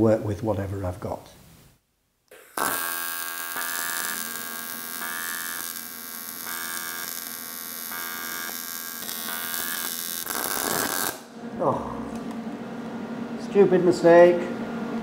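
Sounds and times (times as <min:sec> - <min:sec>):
pulsing welding arc buzz: 0:02.3 - 0:11.4.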